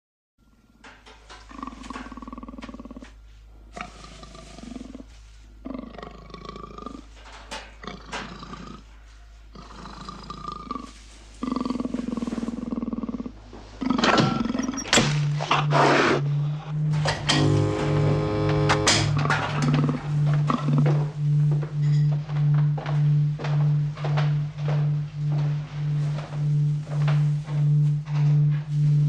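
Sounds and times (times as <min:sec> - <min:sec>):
big cats growling and snarling: 0:09.6 - 0:17.1.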